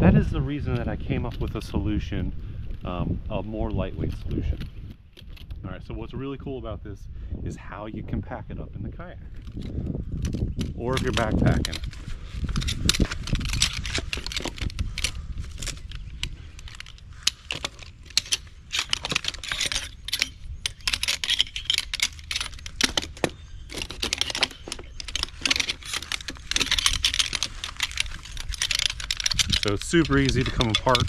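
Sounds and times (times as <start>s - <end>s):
metal stool legs clattering: 10.3s - 31.0s.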